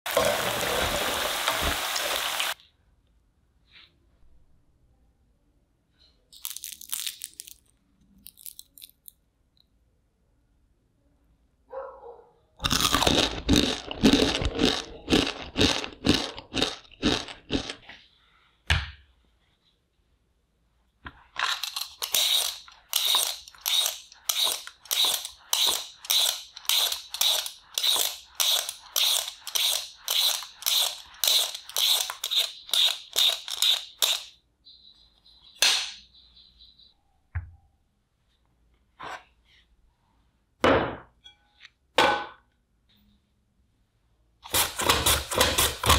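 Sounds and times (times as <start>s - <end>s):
peeler scraping potato skin: 21.4s - 34.4s, 44.4s - 45.9s.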